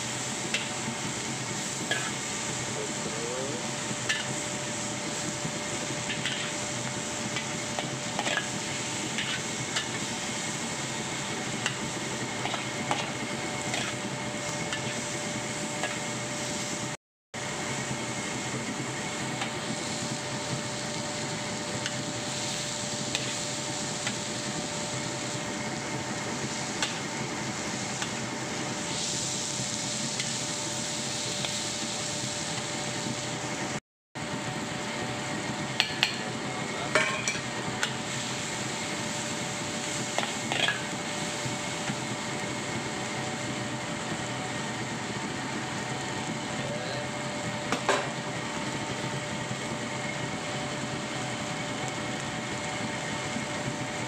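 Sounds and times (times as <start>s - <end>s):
food sizzling in a wok: 0.0s - 54.0s
metal spatula scraping a wok: 12.5s - 14.0s.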